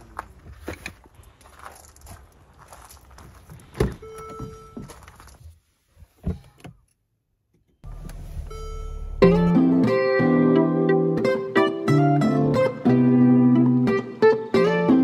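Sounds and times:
guitar music: 7.8 - 15.0
short ringing tone: 8.4 - 9.5.

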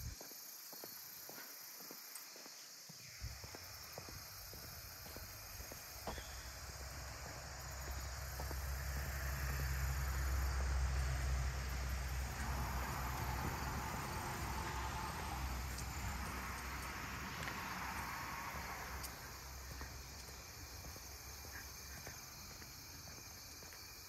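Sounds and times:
insects chirring: 0.0 - 24.0
vehicle engine rumble passing: 3.7 - 22.7.

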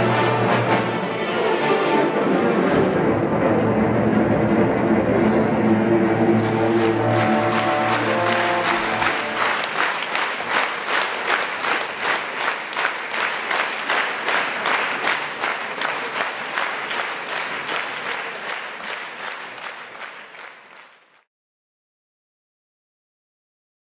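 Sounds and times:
audience applauding: 6.0 - 21.3.

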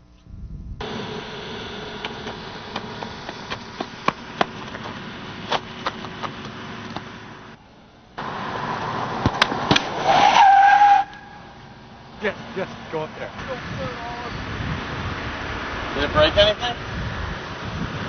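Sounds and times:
strong thumps: 0.8 - 7.6
car approaching: 0.8 - 18.0
knocks and thuds: 2.0 - 7.2.

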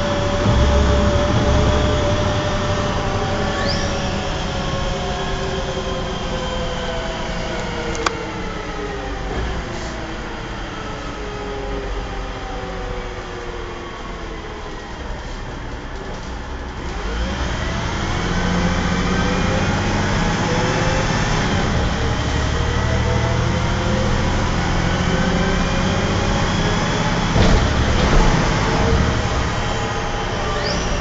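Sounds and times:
rising whine: 0.0 - 9.3
bus diesel engine accelerating: 0.0 - 31.0.

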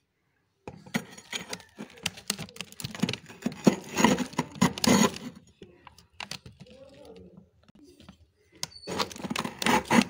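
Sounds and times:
spoon scraping frost: 0.8 - 5.5, 8.6 - 10.0.

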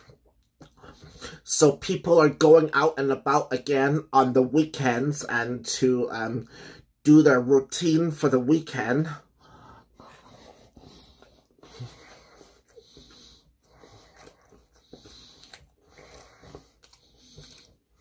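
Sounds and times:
person chewing food: 0.0 - 1.4, 9.3 - 18.0.

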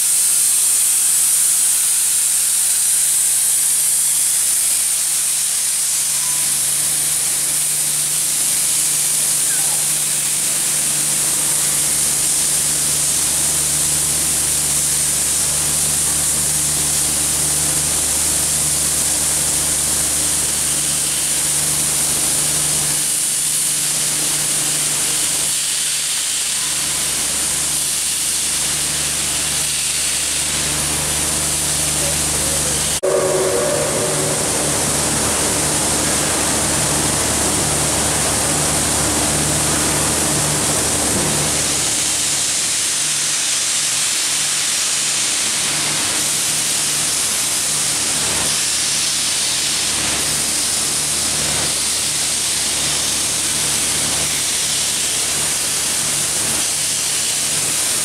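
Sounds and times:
steam venting hiss: 0.0 - 58.0
low hum: 32.4 - 37.6.

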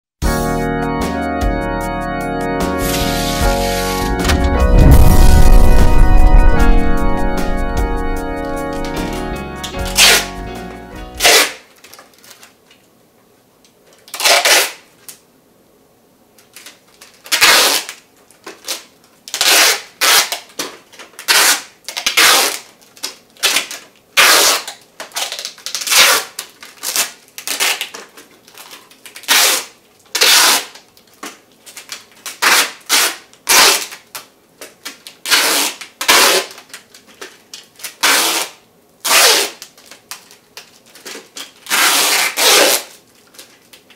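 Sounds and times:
tape ripping off roll: 2.8 - 5.0, 7.4 - 10.4, 11.1 - 12.4, 14.0 - 14.9, 16.6 - 37.0, 37.7 - 43.9
tape rustling: 8.2 - 10.4, 11.2 - 12.8, 16.4 - 43.9.

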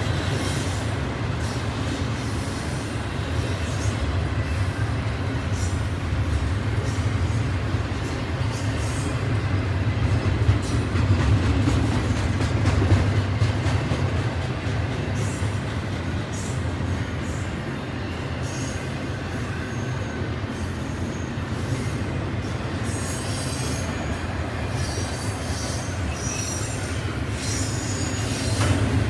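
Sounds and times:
train wheels rumbling on rails: 0.0 - 29.0.

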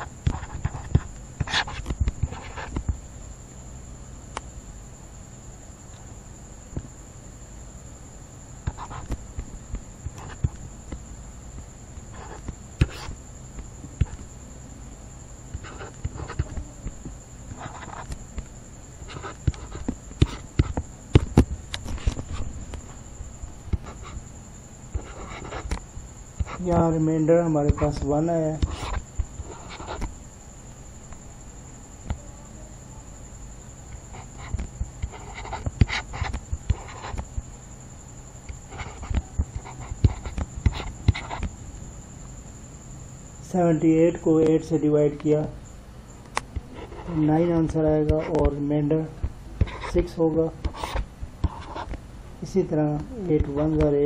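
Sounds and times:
stylus tapping and scratching on tablet: 0.0 - 3.0, 8.6 - 11.0, 12.0 - 14.3, 15.5 - 24.2, 24.9 - 25.8, 26.4 - 30.2, 33.9 - 37.5, 38.5 - 41.6, 46.4 - 48.6, 49.6 - 52.0, 52.9 - 54.0
high-pitched electrical whine: 0.0 - 54.0.

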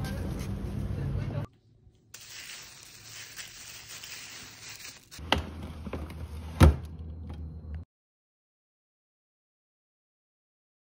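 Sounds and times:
plastic bags rustling: 2.2 - 5.2.

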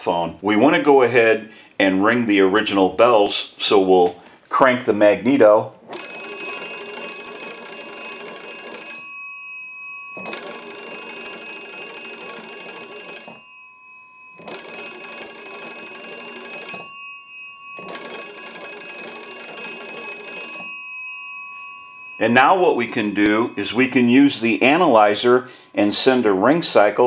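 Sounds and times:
telephone bells ringing: 5.9 - 25.9.

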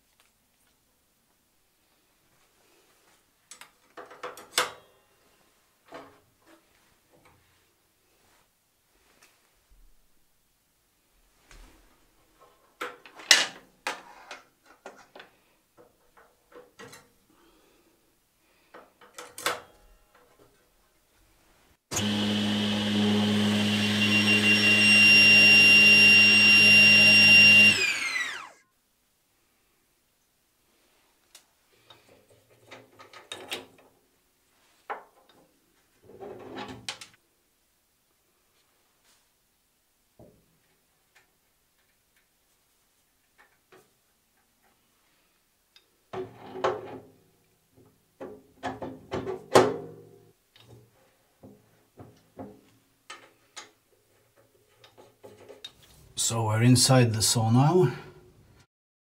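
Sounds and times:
saw blade spinning down: 21.9 - 28.6
table saw running: 21.9 - 28.6.

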